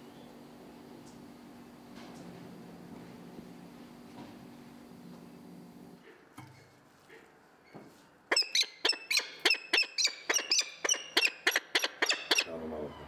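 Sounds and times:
falcon calling: 8.3 - 13.0.

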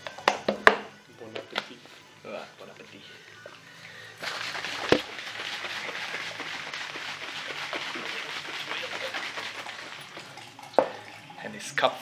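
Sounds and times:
shaker bottle liquid sloshing: 4.2 - 11.4.

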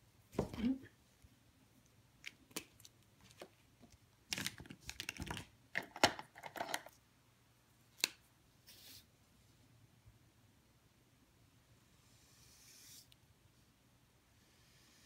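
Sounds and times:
art supplies clicking and tapping: 3.3 - 7.0.

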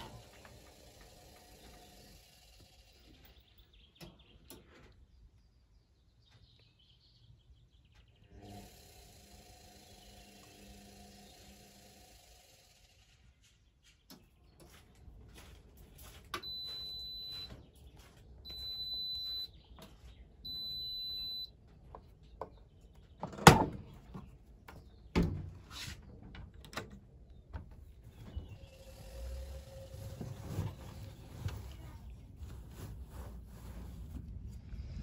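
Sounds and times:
washing machine beeps: 16.4 - 17.6, 18.4 - 19.6, 20.4 - 21.6
door latch clunks: 23.2 - 23.9
laundry rustling: 29.9 - 34.5.

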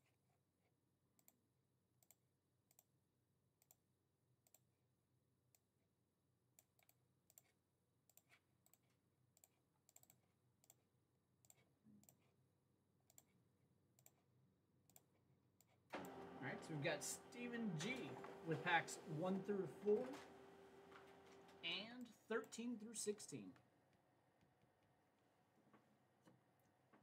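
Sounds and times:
computer mouse clicks: 1.2 - 1.4, 2.0 - 2.9, 3.6 - 3.8, 4.4 - 4.6, 6.6 - 10.8, 11.4 - 12.3, 13.1 - 13.3, 14.0 - 14.2, 14.9 - 16.2.

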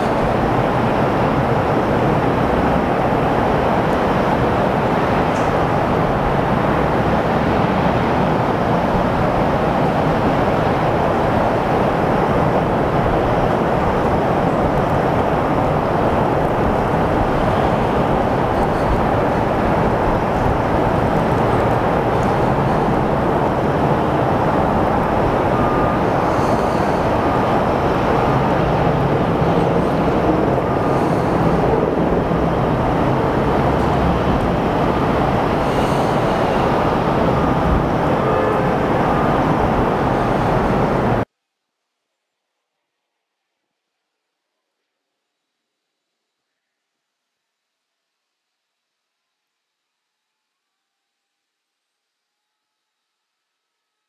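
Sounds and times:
de-icing trucks running: 0.0 - 41.3
jet airliner rumbling: 0.0 - 41.3.

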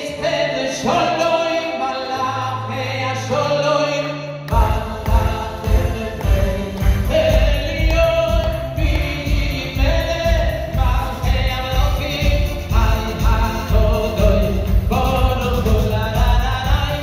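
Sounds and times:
man singing into a microphone: 0.0 - 17.0
amplified backing music with beat: 2.2 - 17.0.

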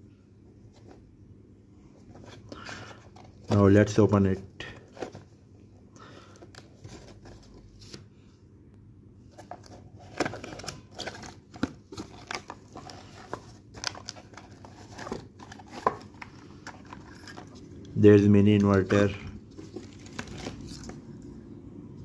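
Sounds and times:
cardboard box rustling and scraping: 9.3 - 17.7, 18.9 - 21.0.

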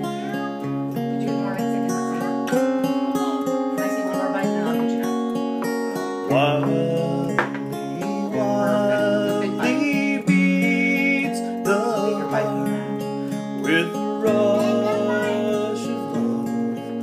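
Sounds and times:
acoustic guitar fingerpicked: 0.0 - 17.0.

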